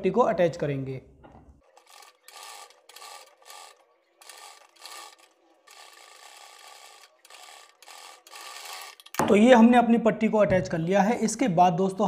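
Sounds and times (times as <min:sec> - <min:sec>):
sewing machine stitching: 0:01.6 - 0:09.1.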